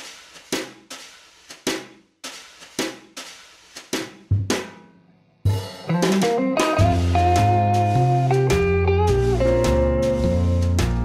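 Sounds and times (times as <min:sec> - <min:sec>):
drum kit beat: 0:00.0 - 0:11.0
full band playing: 0:05.7 - 0:11.0.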